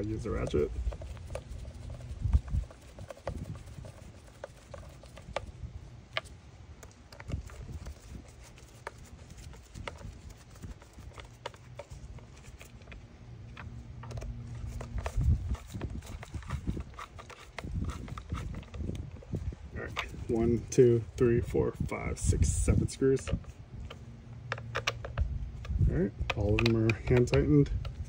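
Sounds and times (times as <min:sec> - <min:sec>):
faint low hum: 0:00.0 - 0:28.0
plastic housing handled: 0:00.4 - 0:20.3, 0:23.2 - 0:28.0
screwdriver clicks and taps: 0:23.9 - 0:25.2, 0:26.3 - 0:28.0.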